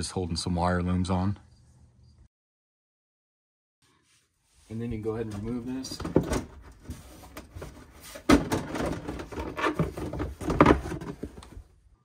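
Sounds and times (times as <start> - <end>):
plastic scraping and rubbing: 5.3 - 11.7.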